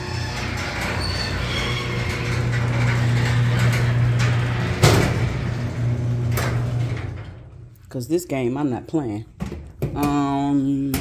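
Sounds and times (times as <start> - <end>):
garage door opener motor hum: 0.0 - 7.7
garage door rattling: 0.0 - 7.8.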